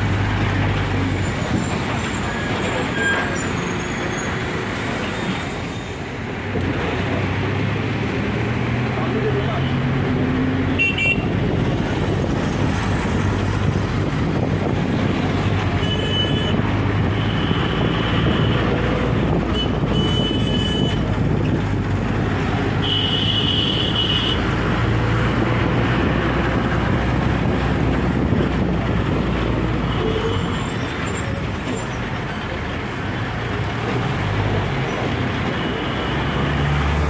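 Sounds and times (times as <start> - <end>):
road traffic engine drone: 0.0 - 37.0
vehicle horns honking: 10.7 - 11.4, 15.8 - 16.6, 19.5 - 21.1, 22.8 - 24.4
wind buffeting microphone: 11.2 - 22.8, 24.5 - 30.1.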